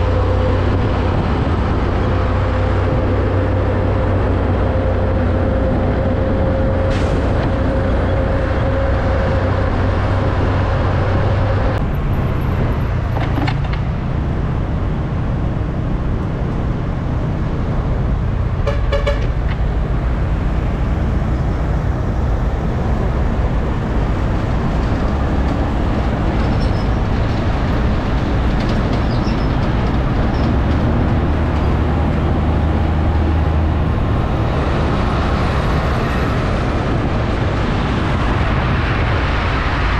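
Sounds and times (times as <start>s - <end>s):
trucks and traffic passing: 0.0s - 39.9s
vehicle horn toot: 18.6s - 19.4s.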